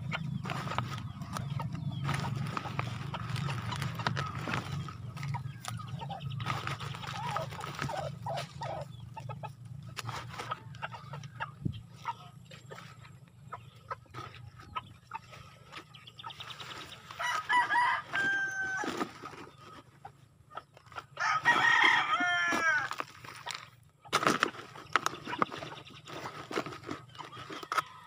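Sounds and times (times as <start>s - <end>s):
plastic flower pot rustling: 0.0s - 8.8s, 9.9s - 13.1s, 14.0s - 20.2s, 20.8s - 28.0s
rooster crowing: 17.2s - 19.0s, 21.2s - 23.0s.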